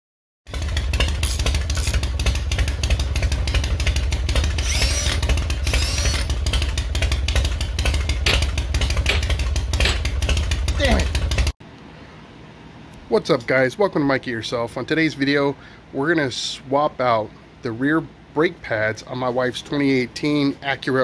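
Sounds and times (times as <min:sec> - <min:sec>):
loud engine running: 0:00.5 - 0:11.6.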